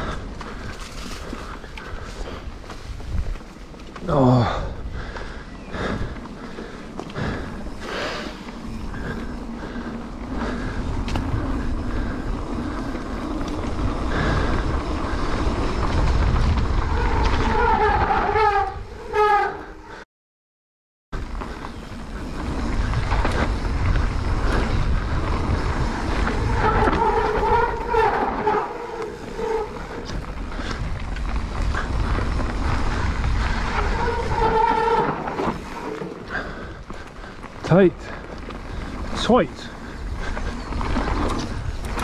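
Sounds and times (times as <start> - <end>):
bike rattling: 0.0 - 20.0, 21.2 - 42.0
bike tyres on dirt trail: 0.0 - 20.0, 21.2 - 42.0
wind noise: 0.0 - 20.0, 21.2 - 42.0
disc brakes squealing: 16.8 - 20.0, 25.5 - 30.2, 32.8 - 36.8.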